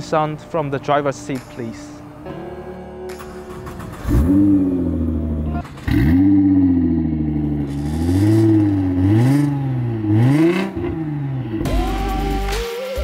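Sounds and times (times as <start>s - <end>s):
car engine revving: 3.5s - 12.6s.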